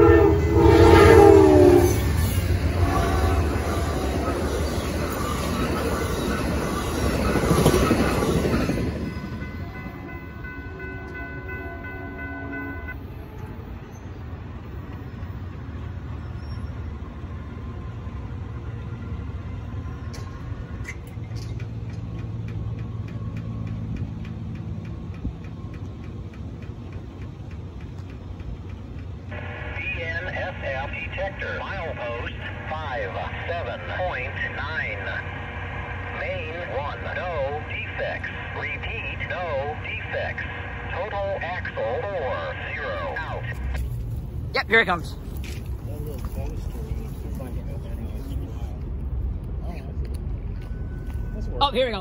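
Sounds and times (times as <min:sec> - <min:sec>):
train horn chord: 0:00.0 - 0:04.0, 0:09.3 - 0:13.5
train wheels rushing past: 0:00.0 - 0:12.2
low train rumble: 0:00.0 - 0:52.0.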